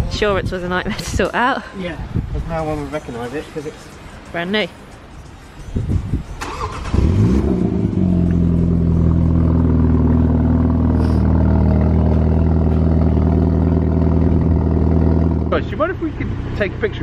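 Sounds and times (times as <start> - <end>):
car engine starting and idling: 6.2 - 17.0.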